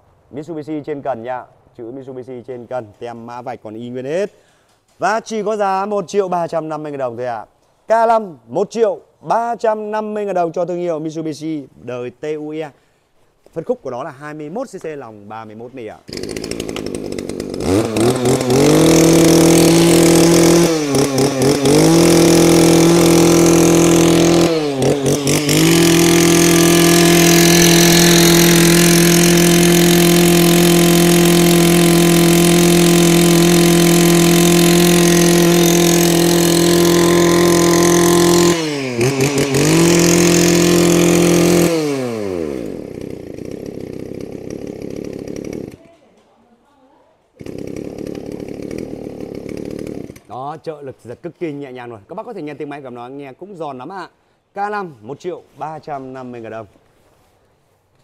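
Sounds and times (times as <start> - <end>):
brush cutter engine revving: 16.0 - 45.9, 47.4 - 50.5.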